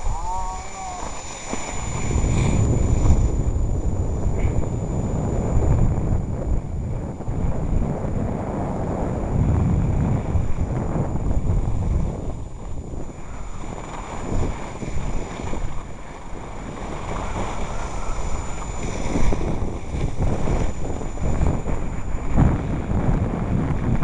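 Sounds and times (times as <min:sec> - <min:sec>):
wind buffeting microphone: 0:00.0 - 0:24.0
skis scraping on snow: 0:00.6 - 0:03.2.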